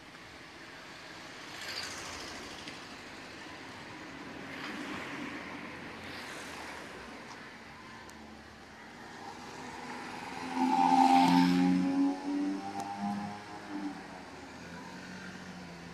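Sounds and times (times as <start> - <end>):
vehicles passing: 0.0 - 15.9.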